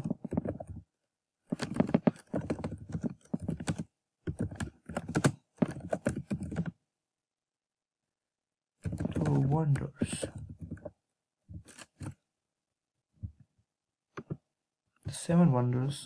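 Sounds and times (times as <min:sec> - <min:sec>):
typing on a keyboard: 0:00.0 - 0:00.8, 0:01.5 - 0:06.8, 0:08.8 - 0:10.9.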